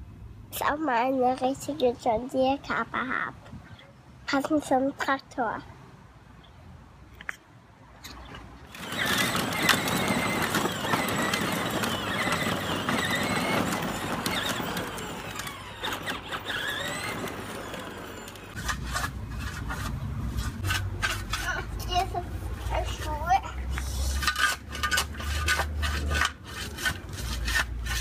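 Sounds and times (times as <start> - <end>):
electric toy tractor motor whining: 8.7 - 19.0
plastic wheels rumbling on paving: 8.7 - 23.4.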